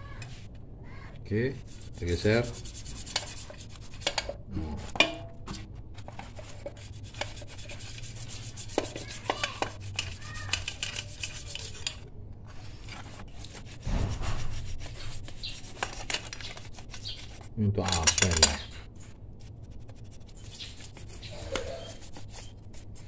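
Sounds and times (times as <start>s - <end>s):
rubbing and scraping on metal: 1.4s - 23.0s
metal parts clicking and knocking: 9.4s - 12.0s, 17.8s - 18.7s.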